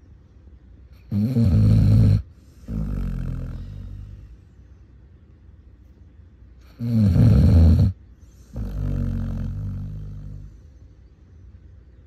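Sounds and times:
dog snoring: 0:01.0 - 0:04.4, 0:06.6 - 0:10.7.

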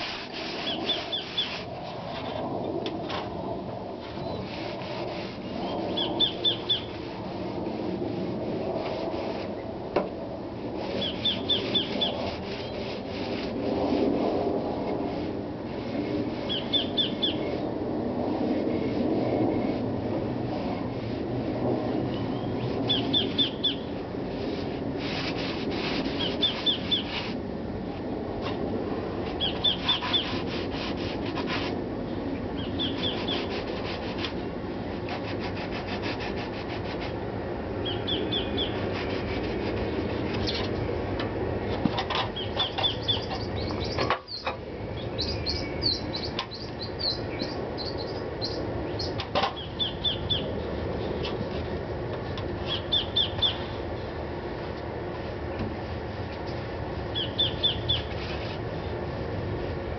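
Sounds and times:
hand sanding wood: 0:00.0 - 0:02.0, 0:04.1 - 0:09.6, 0:10.7 - 0:16.9, 0:24.2 - 0:27.4, 0:29.2 - 0:31.8, 0:32.8 - 0:37.2, 0:38.1 - 0:40.8
bird chirping: 0:05.5 - 0:06.9, 0:11.0 - 0:12.2, 0:16.5 - 0:17.6, 0:22.2 - 0:23.9, 0:26.2 - 0:27.1, 0:29.4 - 0:30.3, 0:32.6 - 0:33.5, 0:37.8 - 0:38.8, 0:42.4 - 0:51.2, 0:52.6 - 0:53.8, 0:57.1 - 0:58.1.

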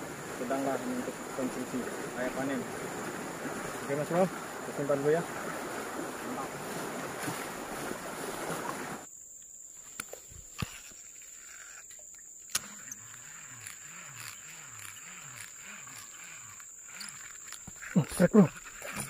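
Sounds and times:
river water rushing over riffle: 0:00.0 - 0:09.1.

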